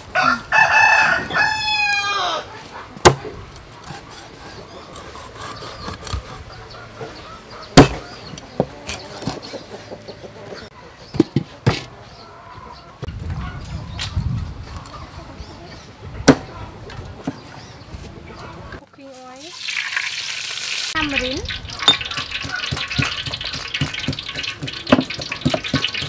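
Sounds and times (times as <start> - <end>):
rooster crowing: 0.1 - 2.5
cleaver chopping on wooden block: 7.8 - 8.0.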